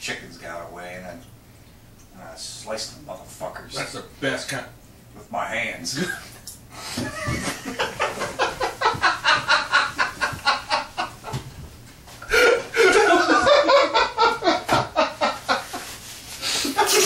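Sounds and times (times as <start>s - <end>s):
hearty laughter: 7.0s - 11.5s, 12.2s - 16.0s.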